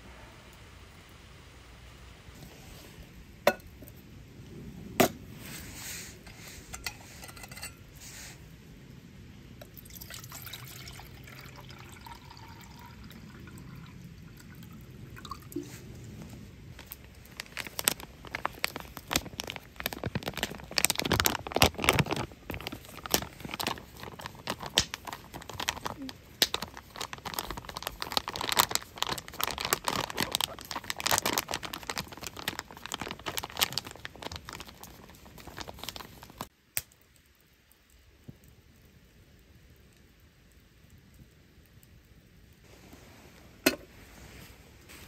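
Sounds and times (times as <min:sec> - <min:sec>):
water pouring into metal mug: 0:09.7 - 0:15.6
crinkling and rustling: 0:15.2 - 0:36.5, 0:42.6 - 0:45.0.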